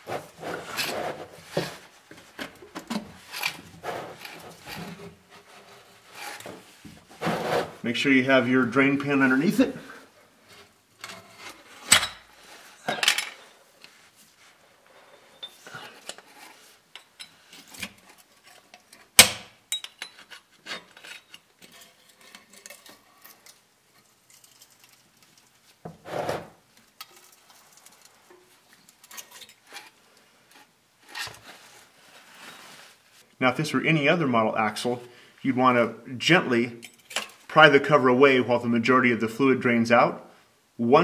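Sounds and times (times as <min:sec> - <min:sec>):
metal tool clinks and scrapes: 0:15.2 - 0:18.7, 0:19.7 - 0:23.6, 0:36.8 - 0:37.4.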